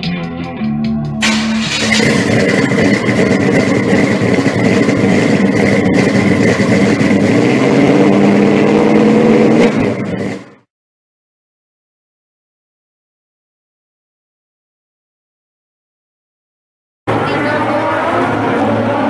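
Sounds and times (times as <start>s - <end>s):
car engine at high revs: 1.2s - 10.6s, 17.1s - 19.0s.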